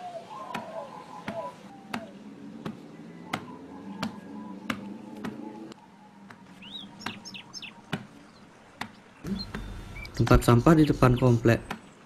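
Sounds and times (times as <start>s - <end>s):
bird chirps: 6.6s - 7.9s, 9.1s - 12.0s.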